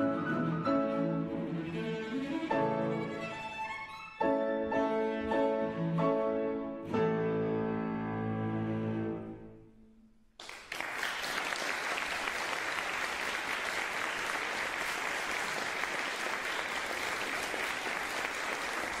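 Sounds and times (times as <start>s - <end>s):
cello and piano chord ringing: 0.0s - 9.9s
audience applause: 10.4s - 19.0s.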